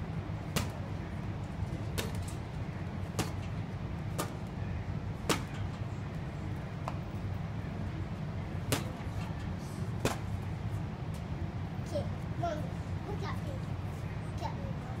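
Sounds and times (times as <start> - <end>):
steady low hum: 0.0 - 15.0
gloved punches on heavy bag: 0.5 - 0.8, 3.1 - 3.5, 5.2 - 5.6, 8.7 - 9.0.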